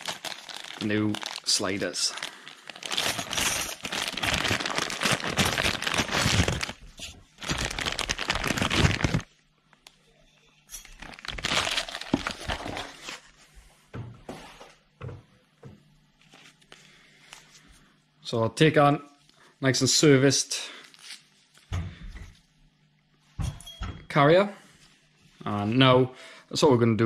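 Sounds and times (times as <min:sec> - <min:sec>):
plastic bag crinkling and rustling: 0:00.0 - 0:09.9, 0:10.7 - 0:13.4.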